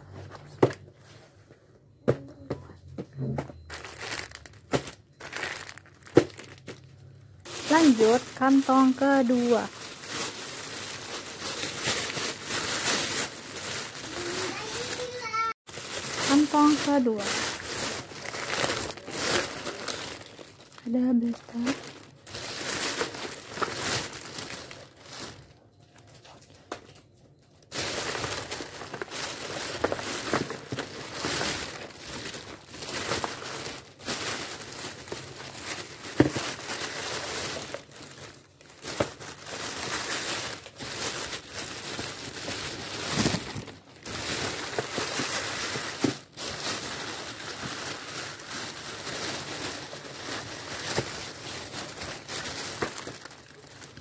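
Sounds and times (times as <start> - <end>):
plastic bag and wrappers crinkling: 3.2 - 54.0.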